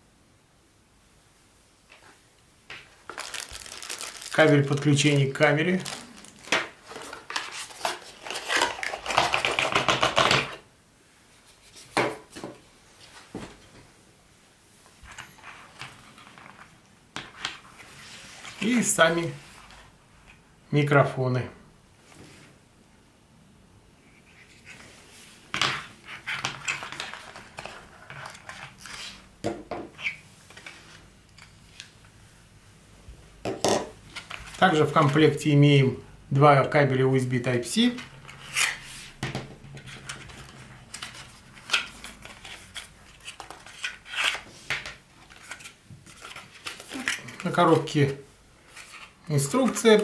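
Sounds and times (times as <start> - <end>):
plastic packaging clicks and rustles: 2.7 - 10.6, 25.7 - 29.2, 34.1 - 35.2, 39.7 - 48.1
small hard items clicking and rattling: 3.1 - 4.8.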